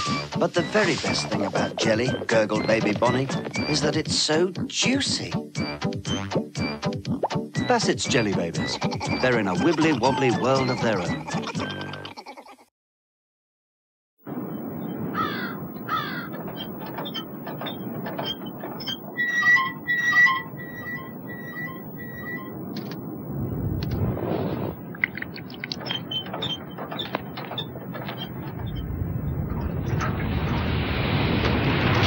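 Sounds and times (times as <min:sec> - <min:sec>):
bird calls: 0:00.0 - 0:04.0, 0:14.5 - 0:22.9, 0:24.8 - 0:30.6
repeated squeak: 0:00.0 - 0:04.0, 0:05.6 - 0:06.9, 0:07.6 - 0:12.2, 0:15.6 - 0:23.1, 0:25.0 - 0:30.6
creaking clanking mechanism: 0:15.6 - 0:24.0, 0:24.8 - 0:30.6
low rumble: 0:19.8 - 0:32.0.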